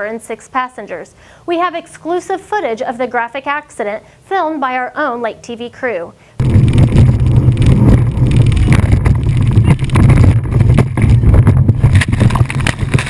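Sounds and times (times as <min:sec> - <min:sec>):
hull slamming on waves: 0:06.4 - 0:13.0
wind buffeting microphone: 0:06.4 - 0:13.0.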